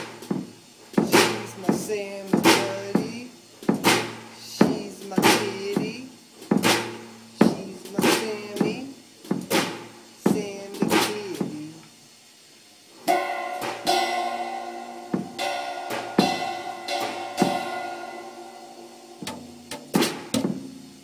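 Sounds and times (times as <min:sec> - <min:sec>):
rock music with drums and guitar: 0:13.1 - 0:21.0.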